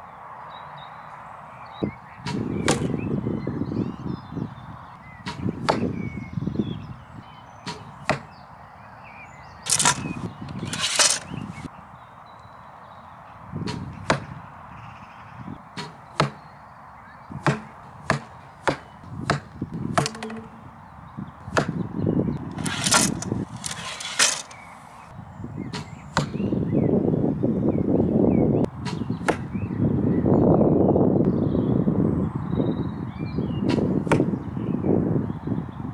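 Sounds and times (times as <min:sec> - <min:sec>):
arrows clicking and clacking: 0:09.7 - 0:11.7, 0:17.5 - 0:20.7, 0:22.4 - 0:25.1
brief scraping: 0:09.7 - 0:11.7, 0:22.5 - 0:24.9.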